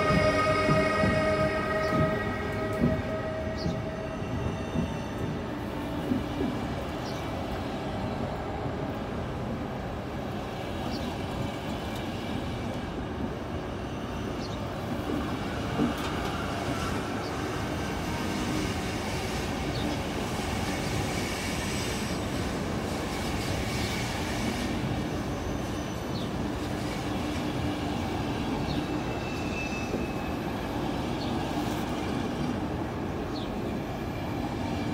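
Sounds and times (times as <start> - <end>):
train wheels squealing: 0.0 - 6.4, 13.7 - 34.9
passenger coaches rolling past: 0.0 - 34.9.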